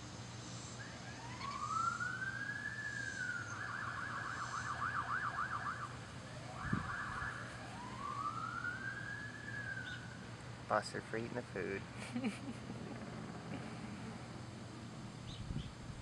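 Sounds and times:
emergency vehicle siren: 0.8 - 10.6.

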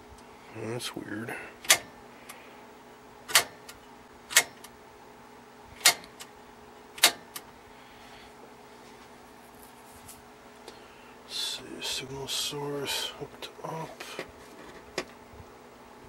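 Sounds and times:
faint steady hum: 0.0 - 16.0
rotary switch clicking: 1.6 - 1.9, 3.3 - 3.6, 4.3 - 4.7, 5.8 - 6.3, 7.0 - 7.5.

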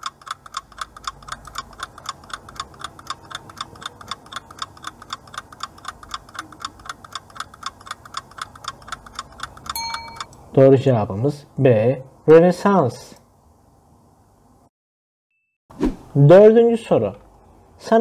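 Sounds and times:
fast timer ticking: 0.0 - 10.4.

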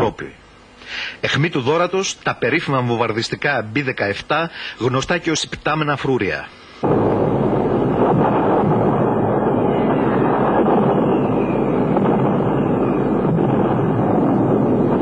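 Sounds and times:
bomber engines droning: 6.8 - 15.0.

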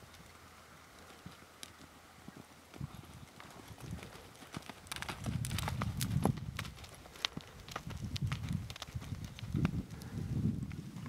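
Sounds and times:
horse hoofbeats on sand: 2.2 - 9.8.

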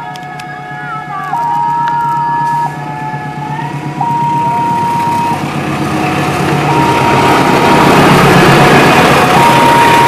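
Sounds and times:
diesel locomotive passing: 0.0 - 10.0
train wheels on rails: 0.0 - 10.0
level crossing two-tone alarm: 6.7 - 8.0, 9.3 - 10.0.

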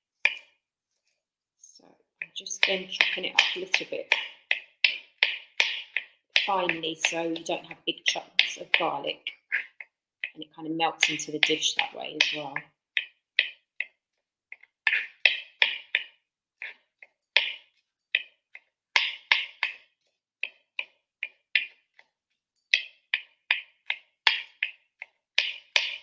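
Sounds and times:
knife chopping on plastic board: 2.6 - 14.0, 14.9 - 16.2, 17.2 - 18.3, 18.9 - 19.8, 22.7 - 26.0.

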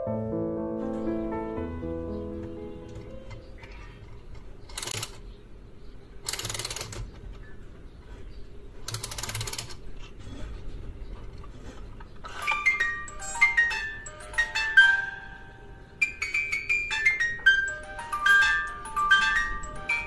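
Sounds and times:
music box playing tune: 12.3 - 20.0.

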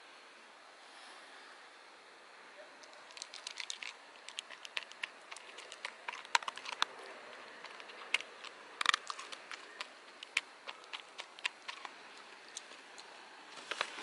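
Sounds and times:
dog crunching dry kibble: 2.8 - 14.0.

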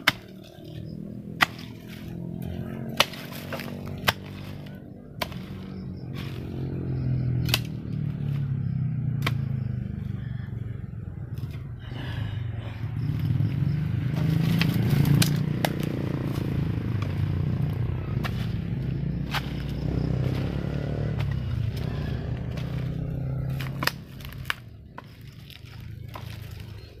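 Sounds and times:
hoe chopping into damp soil: 0.0 - 6.6, 7.4 - 8.5, 14.1 - 25.2
small engine humming: 0.2 - 27.0.

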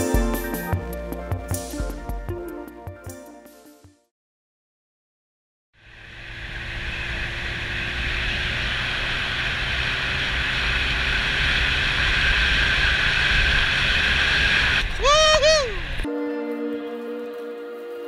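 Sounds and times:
low engine rumble: 5.8 - 16.1
wind and road noise: 5.8 - 16.1.

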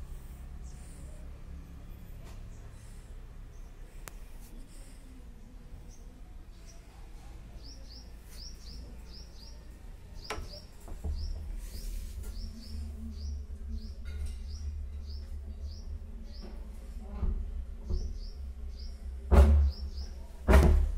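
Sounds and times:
small bird chirping: 5.8 - 16.6.

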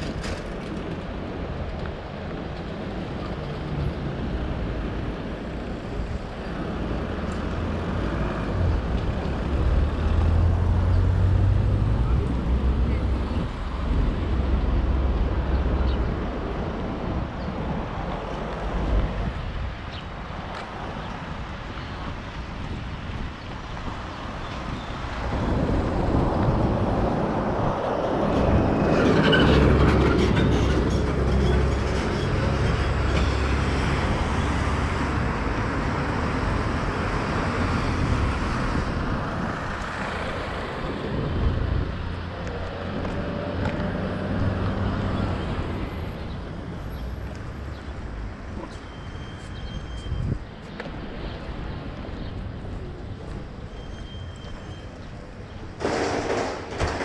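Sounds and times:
cars driving past: 3.4 - 17.3.

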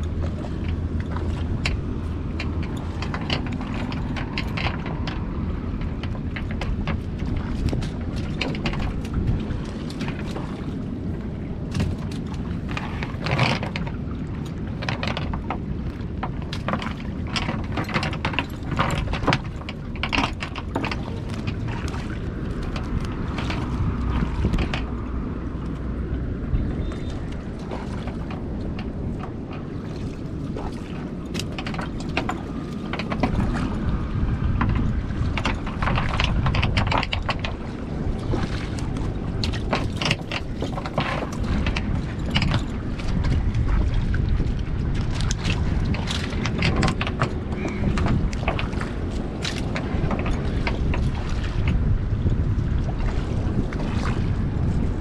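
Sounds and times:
water against hull: 0.0 - 55.0
wind on microphone: 0.0 - 55.0
small splashes: 37.6 - 46.5.

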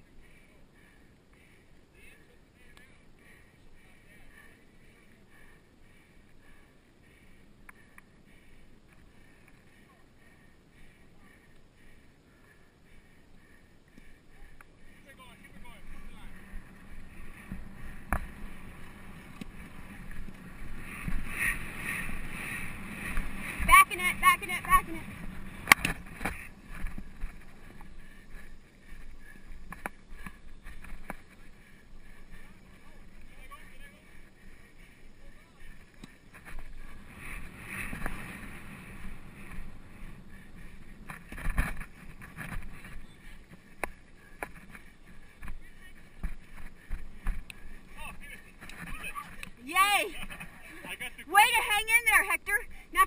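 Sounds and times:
wind rumbling on microphone: 14.1 - 53.0.

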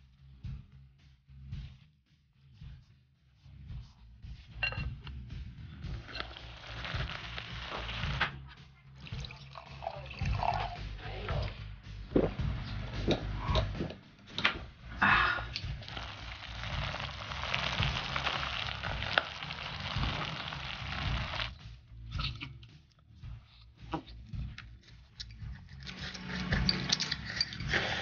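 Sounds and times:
clay pot sizzling: 5.8 - 11.5, 15.0 - 21.6, 25.8 - 28.0
chewing and slurping: 5.9 - 8.2, 15.6 - 21.6, 24.8 - 28.0
person gulping drink: 9.1 - 10.8.

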